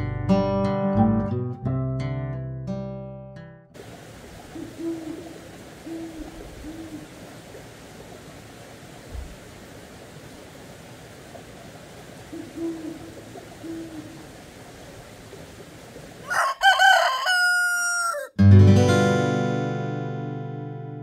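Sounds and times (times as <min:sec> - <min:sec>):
acoustic guitar chord strummed: 0:00.0 - 0:03.7, 0:18.4 - 0:21.0
low steady hiss: 0:03.8 - 0:16.6
owl hooting: 0:04.4 - 0:07.2, 0:12.2 - 0:14.3
rooster crowing: 0:16.2 - 0:18.4.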